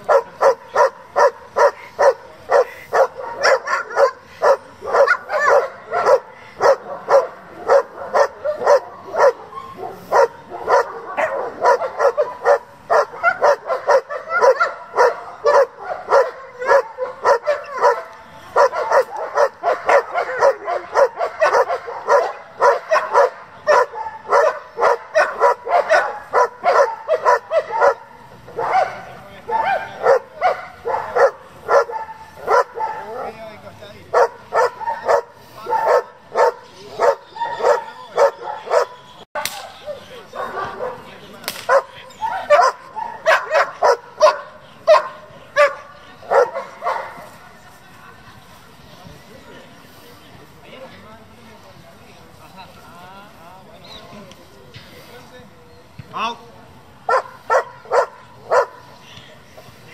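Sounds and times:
dog barking hard: 0.1s - 33.4s, 34.1s - 38.9s, 41.7s - 41.9s, 42.5s - 47.2s, 57.1s - 58.8s.

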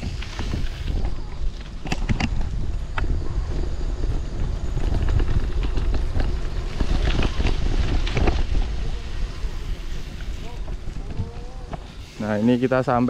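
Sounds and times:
bicycle knocks and rattles: 0.0s - 3.2s, 4.1s - 12.0s
wind rumbling on microphone: 0.0s - 13.0s.

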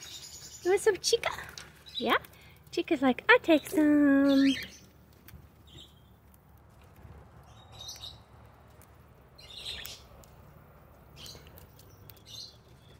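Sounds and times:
parrots chirping: 7.5s - 8.5s, 9.3s - 10.2s.

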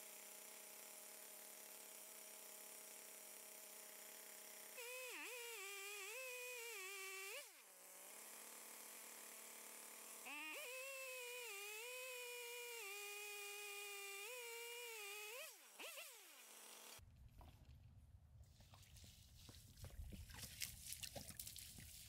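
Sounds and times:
chainsaw cutting log: 0.0s - 17.0s.

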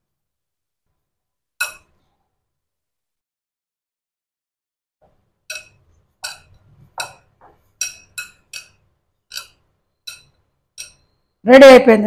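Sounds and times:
glass bowl clinking: 5.5s - 11.4s.

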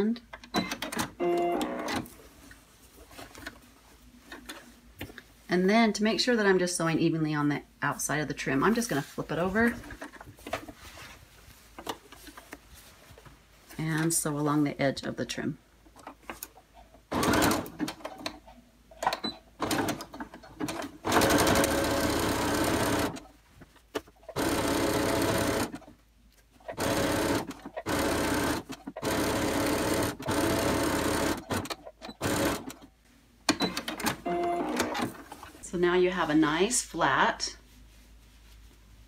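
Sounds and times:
sewing machine stitching: 19.6s - 23.2s, 24.3s - 25.8s, 26.7s - 32.8s.

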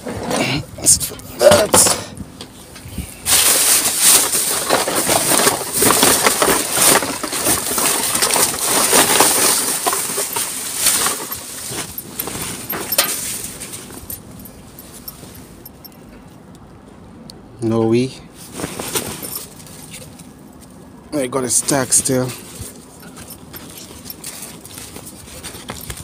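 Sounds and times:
plastic bags rustling and crinkling: 3.3s - 15.3s, 18.4s - 20.3s.

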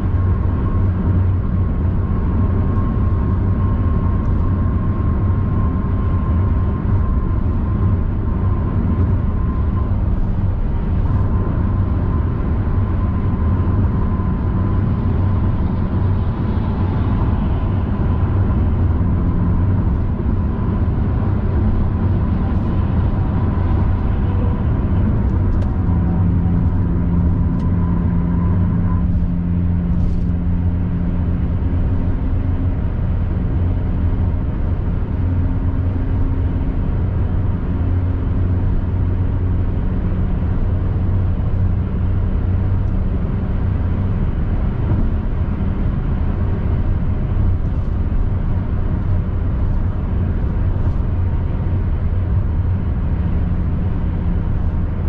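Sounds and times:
high whine: 0.0s - 40.5s
tyre and engine rumble: 0.0s - 55.0s.

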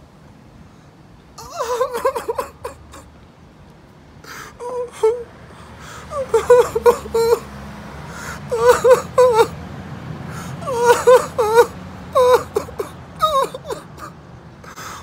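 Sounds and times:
man sobbing and wailing: 1.4s - 3.1s, 4.3s - 7.5s, 8.2s - 9.6s, 10.4s - 15.0s.

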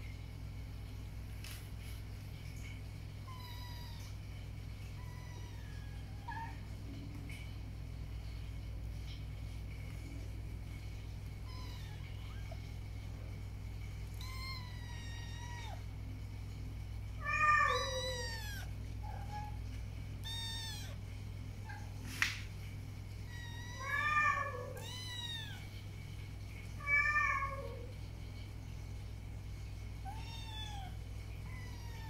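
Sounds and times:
steady low hum: 0.0s - 32.0s
kittens mewing: 20.2s - 21.0s.

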